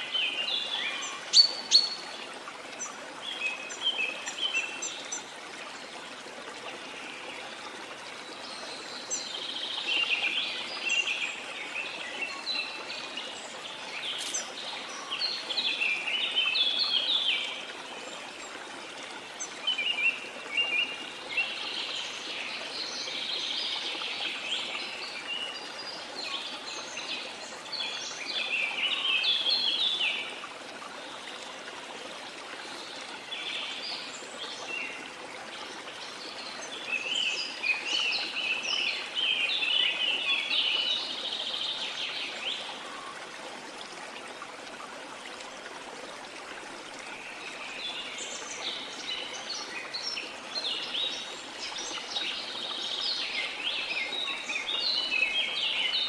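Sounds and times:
running water rushing: 0:00.0 - 0:56.0
small birds chirping: 0:09.1 - 0:17.4.

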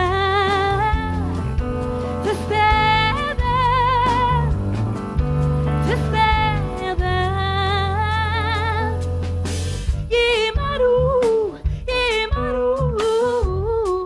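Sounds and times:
woman singing with vibrato: 0:00.0 - 0:01.5, 0:02.1 - 0:04.6, 0:05.8 - 0:09.0, 0:10.0 - 0:14.0
pop band playing: 0:00.0 - 0:14.0.

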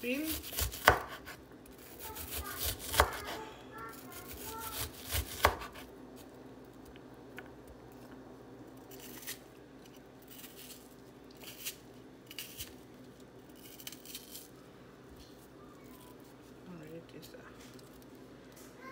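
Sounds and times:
knife chopping on cutting board: 0:00.3 - 0:01.4, 0:02.2 - 0:03.4, 0:04.2 - 0:05.8.

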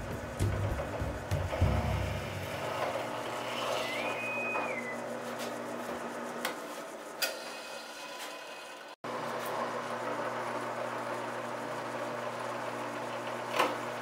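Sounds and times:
drill press motor running: 0:00.0 - 0:06.4, 0:07.2 - 0:14.0
high whine: 0:00.0 - 0:06.5.

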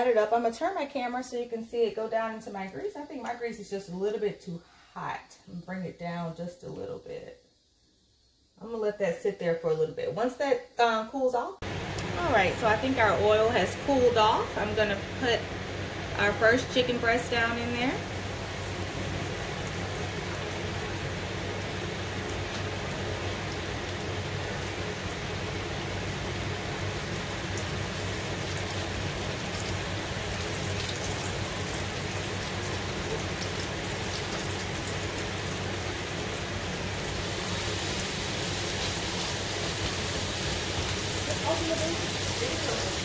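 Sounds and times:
chicken deep-frying in oil: 0:11.6 - 0:43.0.

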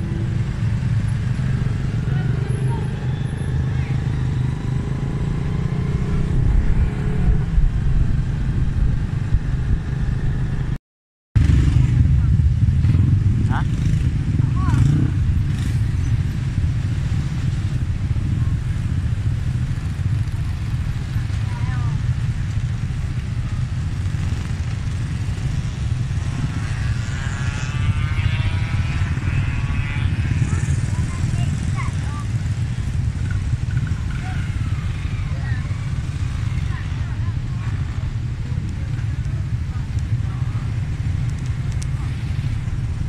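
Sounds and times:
motorcycle engine running: 0:00.0 - 0:10.8, 0:11.4 - 0:43.0
road vehicle rumble: 0:00.0 - 0:10.8, 0:11.4 - 0:43.0
wind buffeting microphone: 0:04.0 - 0:10.8.

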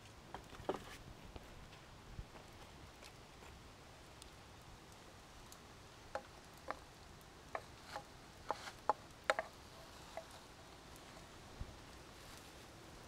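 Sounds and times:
wooden spatula knocking skillet: 0:06.1 - 0:10.4.

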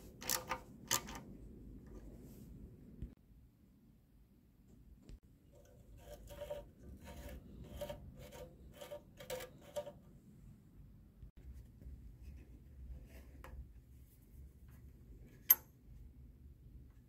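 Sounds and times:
faint scraping of metal parts: 0:05.4 - 0:10.2.

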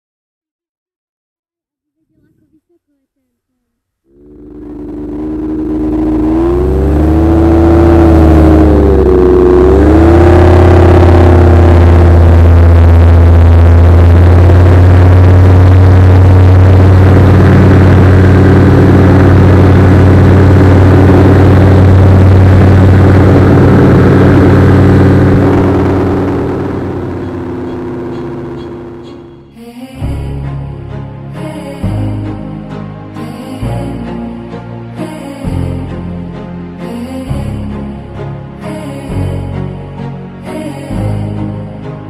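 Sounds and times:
model aircraft motor: 0:04.1 - 0:29.0
wind rumble on microphone: 0:04.2 - 0:28.6.

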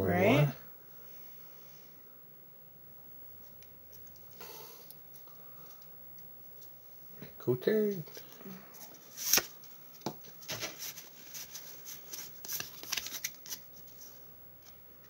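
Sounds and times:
cards sliding and flicking: 0:09.1 - 0:09.6, 0:10.5 - 0:13.7
foil wrapper crinkling: 0:10.6 - 0:13.7.

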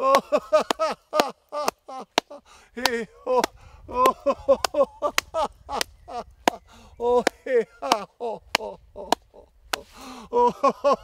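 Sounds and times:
hand clapping: 0:00.6 - 0:06.6, 0:07.2 - 0:09.8.

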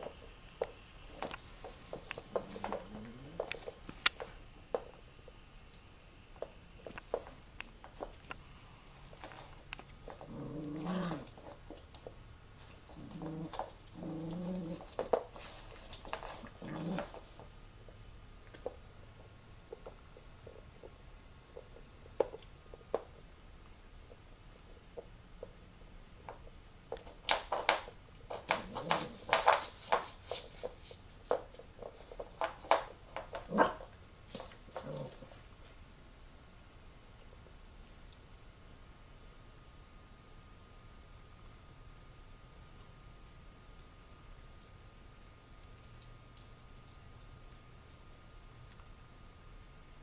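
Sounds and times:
puppy play-growling: 0:01.1 - 0:03.9, 0:08.4 - 0:11.8, 0:12.6 - 0:17.5, 0:28.3 - 0:30.4, 0:33.3 - 0:35.6
puppy barks: 0:33.5 - 0:33.9.

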